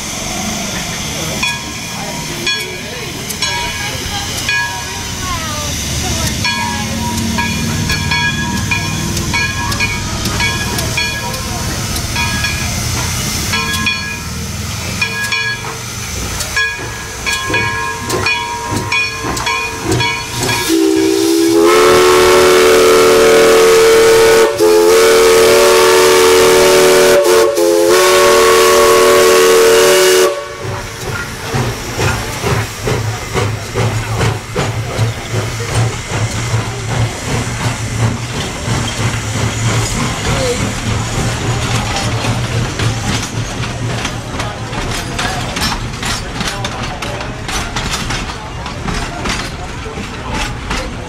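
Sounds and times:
train rumble and clatter: 0:00.0 - 0:51.0
locomotive bell ringing unevenly: 0:00.6 - 0:21.3
steam whistle chord: 0:20.6 - 0:30.7.

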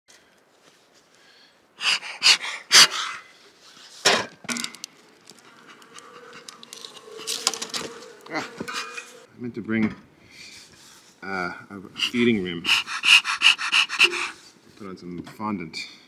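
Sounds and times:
honey bees humming: 0:05.0 - 0:09.3.

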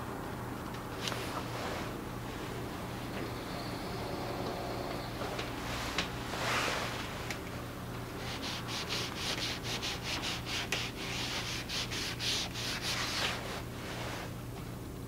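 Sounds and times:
tissue scrubbing on paper: 0:08.2 - 0:14.3.

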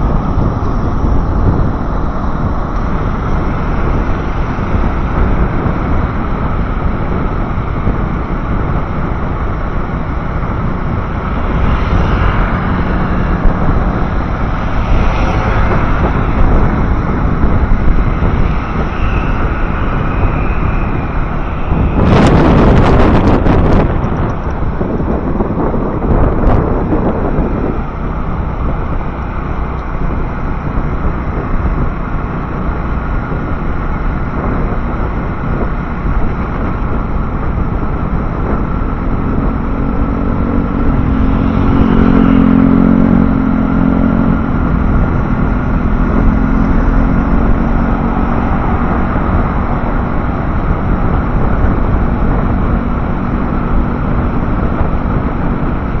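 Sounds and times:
motorcycle engine: 0:00.0 - 0:56.0
wind rush on microphone: 0:00.0 - 0:56.0.

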